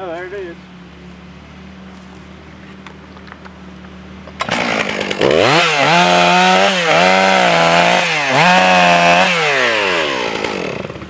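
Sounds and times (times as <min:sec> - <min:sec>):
chainsaw cutting wood: 0:04.2 - 0:11.0.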